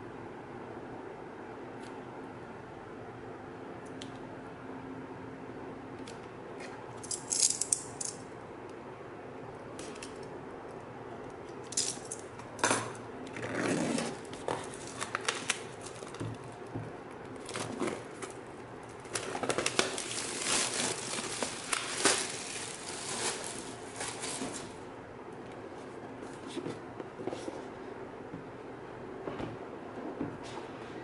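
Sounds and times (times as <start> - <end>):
plastic wrap crinkling: 14.0 - 16.6, 17.3 - 24.8.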